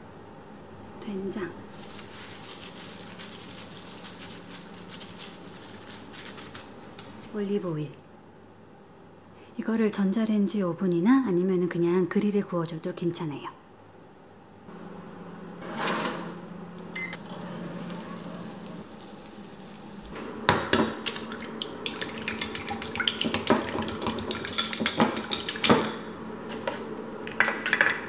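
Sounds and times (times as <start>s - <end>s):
low appliance hum: 0.0s - 28.0s
dishes and utensils clinking: 23.3s - 26.1s.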